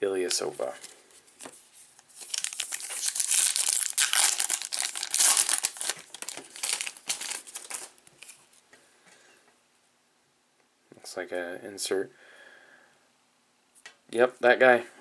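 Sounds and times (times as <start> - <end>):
foil wrapper tearing and crinkling: 2.1 - 8.4.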